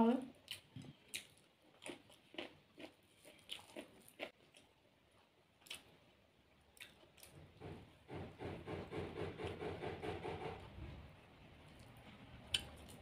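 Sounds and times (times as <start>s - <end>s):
chewing food: 0.4s - 6.0s, 6.7s - 7.4s, 11.6s - 13.0s.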